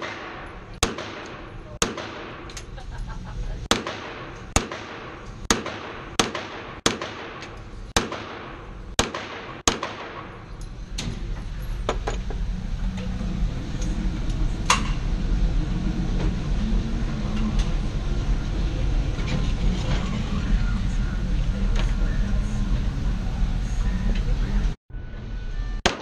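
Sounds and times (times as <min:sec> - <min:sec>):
pistol shots echoing: 0:00.0 - 0:02.5, 0:03.7 - 0:10.5.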